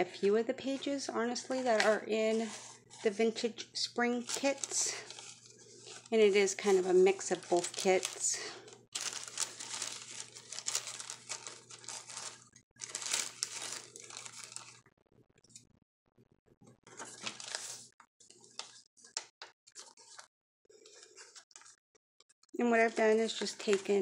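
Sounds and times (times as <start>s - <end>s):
paper pages rustling: 1.6s - 3.1s, 4.2s - 14.8s, 16.9s - 21.8s.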